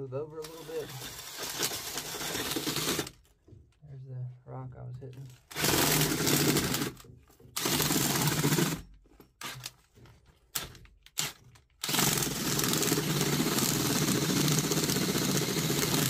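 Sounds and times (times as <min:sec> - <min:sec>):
drill auger boring into dirt: 0:00.4 - 0:03.2, 0:05.5 - 0:09.7, 0:10.6 - 0:16.0.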